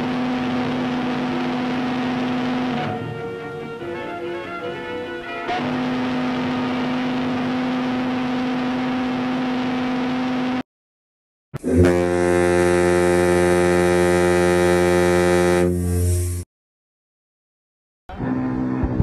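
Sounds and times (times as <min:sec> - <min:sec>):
ship whistle: 0:00.0 - 0:06.9, 0:11.6 - 0:16.4
deep ship horn blast: 0:00.0 - 0:10.1, 0:11.6 - 0:16.4.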